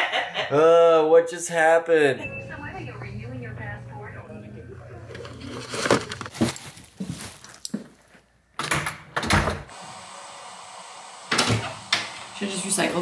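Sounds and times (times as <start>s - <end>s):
handling knocks and clatter: 5.1s - 8.0s.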